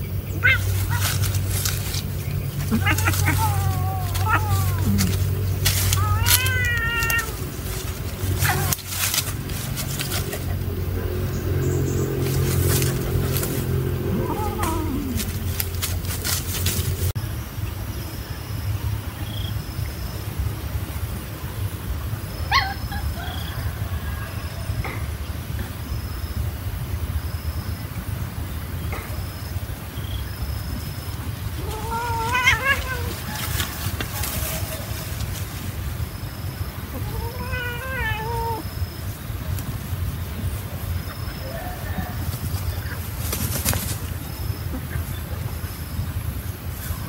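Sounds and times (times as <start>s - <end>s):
steady low rumble: 0.0s - 23.1s
cat high cry: 0.4s - 1.2s, 2.6s - 7.8s, 8.4s - 8.9s, 14.1s - 15.4s, 31.6s - 33.5s, 36.9s - 38.7s
kitten meowing: 2.7s - 7.5s, 14.2s - 15.3s, 31.6s - 33.2s, 37.0s - 38.6s.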